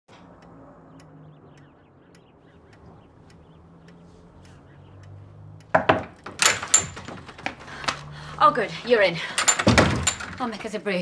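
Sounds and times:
clock ticking: 0.1 - 11.0
door opening with knock: 5.7 - 7.6, 9.4 - 10.5.

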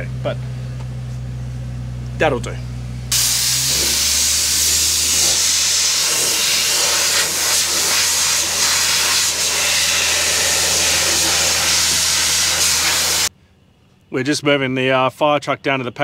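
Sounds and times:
engine idling low: 0.0 - 14.6
air hose hissing: 3.1 - 13.3.

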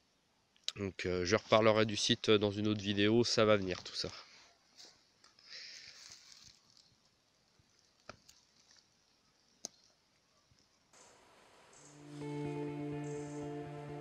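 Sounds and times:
faint steady hiss: 0.0 - 14.0
faint rustling: 3.5 - 9.5.

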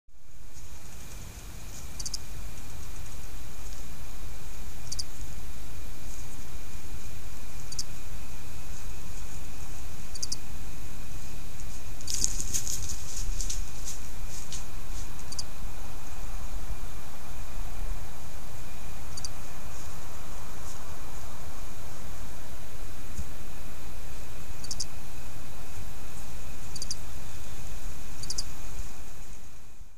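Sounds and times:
outdoor background hiss: 0.1 - 29.9
steady low rumble: 0.1 - 29.9
low rumble: 0.2 - 5.8
rapid high-pitched chirps: 0.9 - 3.5, 4.8 - 5.2, 7.6 - 8.0, 10.1 - 10.4, 15.3 - 15.6, 19.1 - 19.4, 24.6 - 25.0, 26.7 - 27.2, 28.2 - 28.6.

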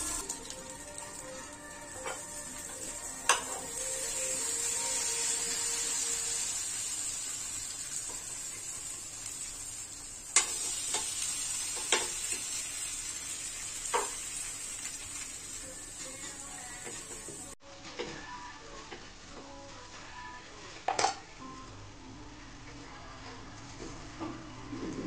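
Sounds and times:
fritters sizzling in oil: 0.0 - 17.5.

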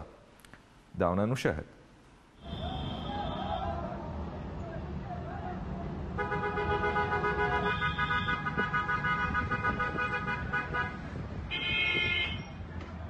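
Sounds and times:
low street noise: 0.0 - 13.0
car horn honking: 2.4 - 3.7, 6.2 - 12.5.

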